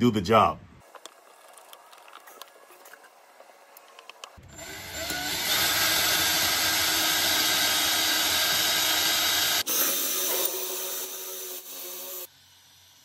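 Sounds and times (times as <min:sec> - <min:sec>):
drill boring through wood: 0:04.4 - 0:13.0.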